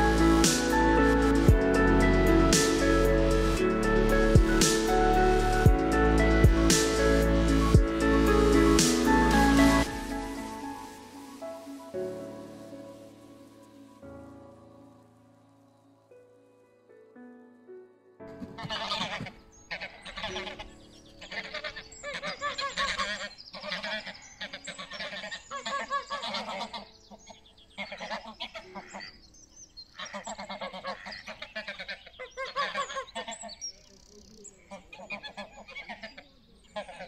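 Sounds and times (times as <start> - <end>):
geese honking: 18.5 - 29.1, 30.0 - 33.6, 34.6 - 37.0.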